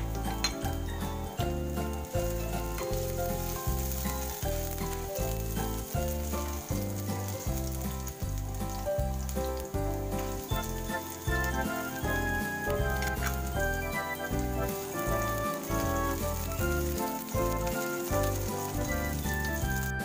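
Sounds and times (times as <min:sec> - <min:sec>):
background music with beat: 0:00.0 - 0:20.0
garlic sizzling in oil: 0:00.0 - 0:20.0
spatula stirring in pan: 0:00.0 - 0:20.0.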